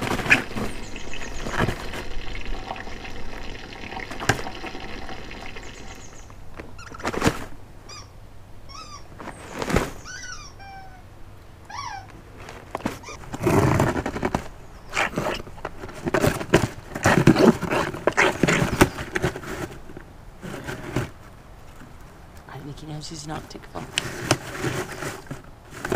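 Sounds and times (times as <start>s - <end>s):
cardboard scraping: 0.0s - 3.1s, 12.4s - 21.3s, 23.8s - 25.9s.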